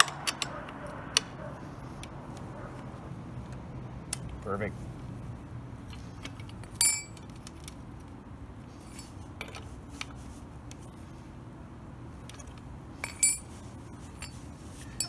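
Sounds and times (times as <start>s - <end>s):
sharp metallic clink: 6.8s - 7.2s, 13.0s - 13.5s.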